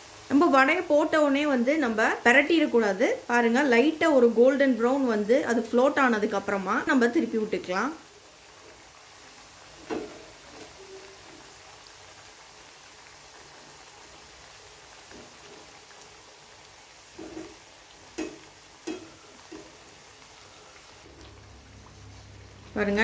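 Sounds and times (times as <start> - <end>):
fritters sizzling in oil: 0.0 - 23.0
strainer clinking against pan: 18.2 - 19.8.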